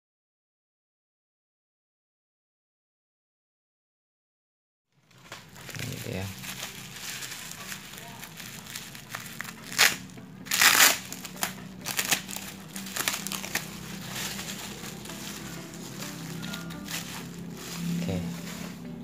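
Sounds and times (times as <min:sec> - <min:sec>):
bubble wrap crinkling: 0:05.0 - 0:19.0.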